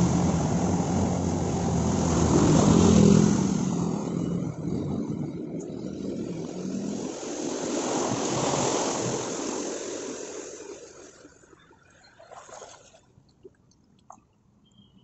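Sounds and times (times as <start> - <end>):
car spraying floodwater: 0.0 - 11.2.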